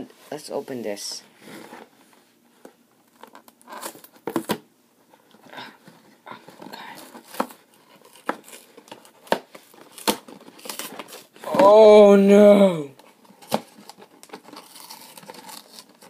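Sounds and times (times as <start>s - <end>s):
cardboard tearing and rustling: 3.1s - 4.6s, 6.4s - 11.9s, 13.0s - 16.0s.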